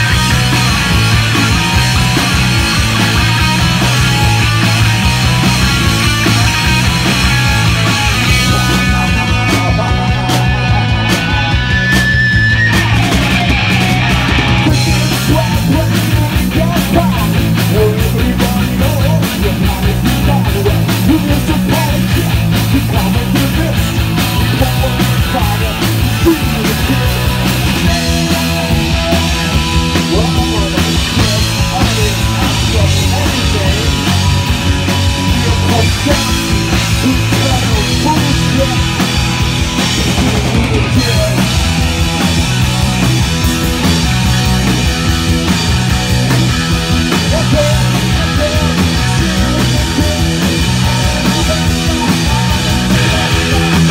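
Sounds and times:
bass guitar: 0:00.0 - 0:53.9
drum kit: 0:00.0 - 0:53.9
electric guitar: 0:00.0 - 0:53.9
person singing: 0:14.6 - 0:29.0, 0:29.9 - 0:39.2, 0:47.1 - 0:53.9.

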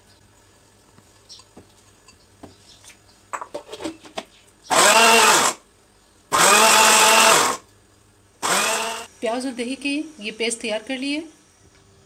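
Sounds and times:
blender motor whine: 0:04.7 - 0:05.6, 0:06.3 - 0:07.6, 0:08.4 - 0:09.1.

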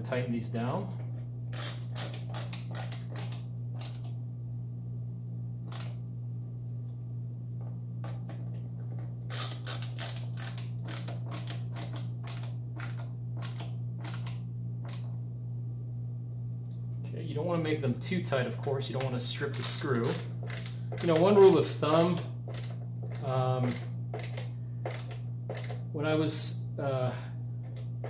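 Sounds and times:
steady low hum: 0:00.0 - 0:28.0
screwdriver clicking: 0:01.6 - 0:04.1, 0:09.3 - 0:15.1, 0:20.0 - 0:21.4, 0:22.0 - 0:25.8.

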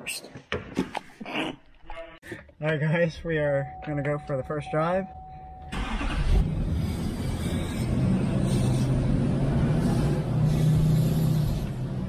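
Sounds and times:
road noise: 0:04.6 - 0:12.0
truck engine humming: 0:04.7 - 0:12.0.

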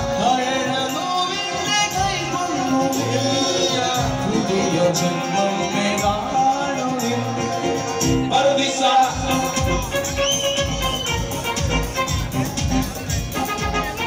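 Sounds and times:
man singing into a microphone: 0:00.0 - 0:11.1
live music: 0:00.0 - 0:14.0.

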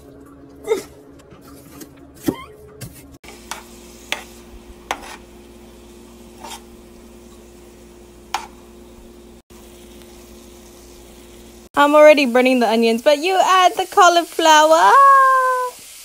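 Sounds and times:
onions sizzling in a frying pan: 0:03.2 - 0:16.0
spatula knocking and scraping pan: 0:03.3 - 0:05.3, 0:06.3 - 0:06.8, 0:08.3 - 0:08.6.

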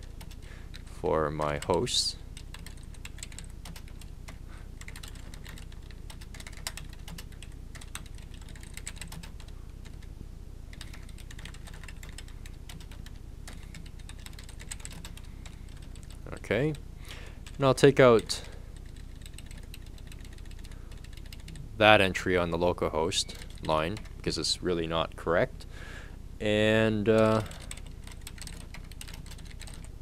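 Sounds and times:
steady low hum: 0:00.0 - 0:30.0
keyboard typing: 0:01.4 - 0:10.1, 0:10.7 - 0:16.2, 0:17.4 - 0:21.6, 0:23.2 - 0:24.2, 0:27.1 - 0:30.0.

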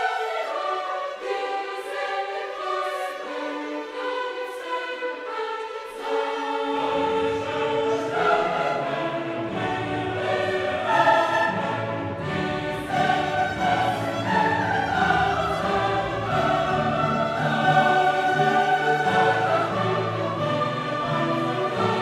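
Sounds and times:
sustained choral singing: 0:00.0 - 0:22.0.

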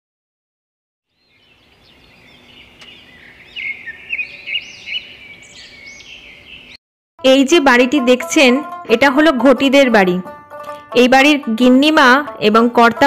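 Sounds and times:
birds chirping and twittering: 0:01.1 - 0:06.8
sharp bird chirps: 0:01.1 - 0:06.8.

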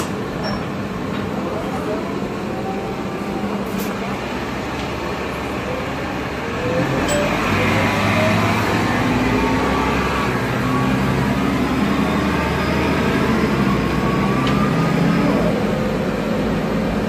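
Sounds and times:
bus diesel engine droning: 0:00.0 - 0:17.0
engine whine rising in pitch: 0:05.7 - 0:16.6.

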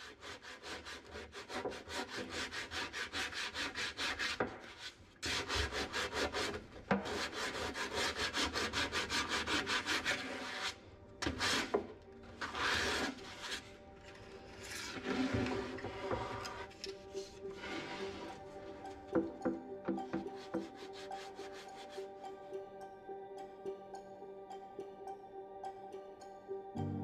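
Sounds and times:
sanding block knocks and scrapes: 0:00.0 - 0:13.7, 0:19.1 - 0:22.0
sandpaper rasping back and forth: 0:00.0 - 0:13.7.

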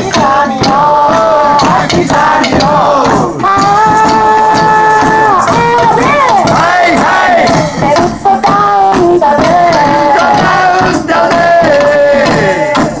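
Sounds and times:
backing group music: 0:00.0 - 0:13.0
sharp percussive strikes: 0:00.0 - 0:13.0
woman singing into a microphone: 0:03.4 - 0:06.6, 0:07.8 - 0:10.9.

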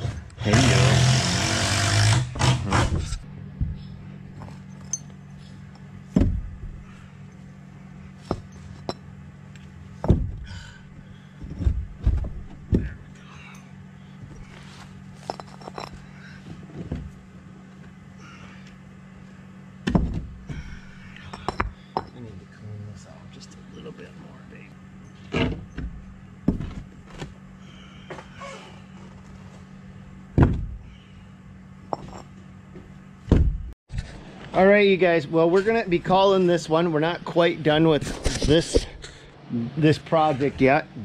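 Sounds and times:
steady low hum: 0:00.0 - 0:41.0
brick pavers knocking and scraping: 0:08.2 - 0:09.0, 0:15.2 - 0:16.0, 0:31.9 - 0:32.3.

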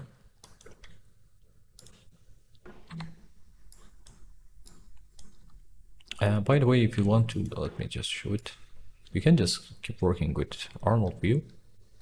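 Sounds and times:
mouse and keyboard clicks: 0:01.8 - 0:02.1, 0:02.9 - 0:06.2.

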